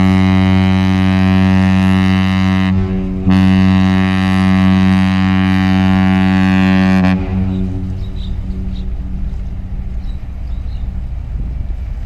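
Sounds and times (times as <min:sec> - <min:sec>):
ship whistle long low blast: 0:00.0 - 0:09.3.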